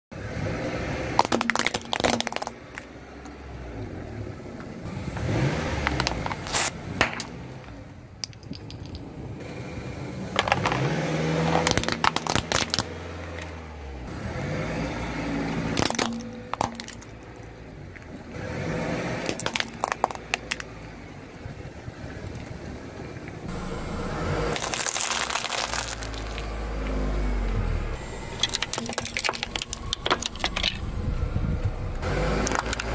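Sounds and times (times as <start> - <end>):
low rumble of moving car: 0.1 - 32.9
plastic toys crunching under tyre: 1.1 - 3.0, 5.3 - 7.4, 10.4 - 13.6, 15.7 - 18.2, 19.1 - 20.8, 24.5 - 27.1, 28.3 - 31.1, 32.2 - 32.9.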